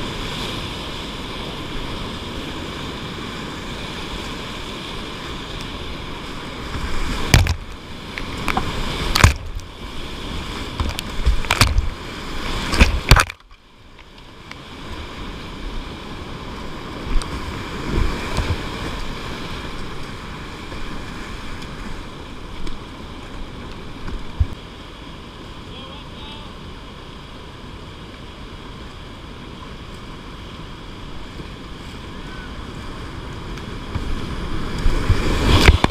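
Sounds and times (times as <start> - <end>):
whitewater rapid rushing: 0.0 - 35.9
loud water splashes: 6.6 - 13.5.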